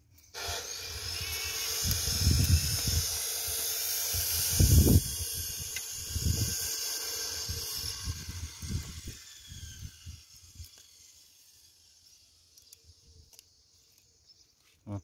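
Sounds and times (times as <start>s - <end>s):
wind buffeting microphone: 1.8s - 3.2s, 4.1s - 6.7s, 7.4s - 10.3s.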